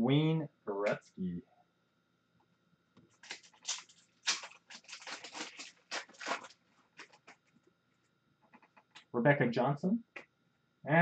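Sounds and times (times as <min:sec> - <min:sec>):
wrapper tearing and crinkling: 0:03.2 - 0:07.5.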